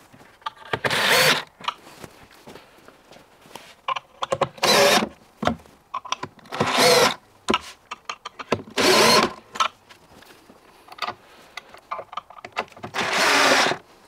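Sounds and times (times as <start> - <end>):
cordless drill driving screws: 0.8 - 1.4, 4.6 - 5.1, 6.5 - 7.2, 8.7 - 9.4, 12.9 - 13.8
small clicks and knocks: 10.9 - 13.0.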